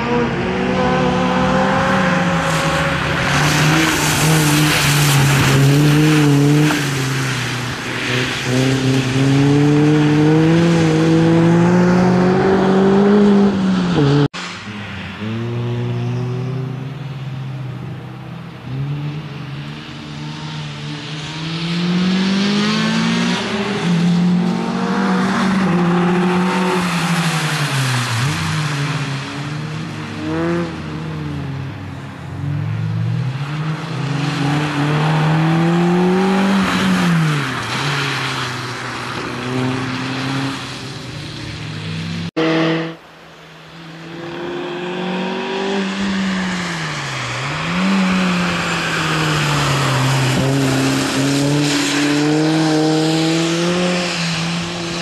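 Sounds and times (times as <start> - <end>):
car engine revving hard: 30.1 - 30.8, 33.3 - 38.4, 42.1 - 43.0, 47.3 - 55.0.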